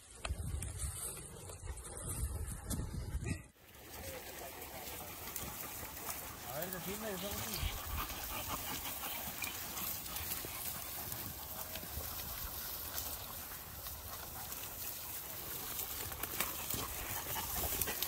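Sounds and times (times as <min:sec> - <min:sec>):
paws and feet on loose stones: 0:00.0 - 0:18.0
brush rustling: 0:03.6 - 0:18.0.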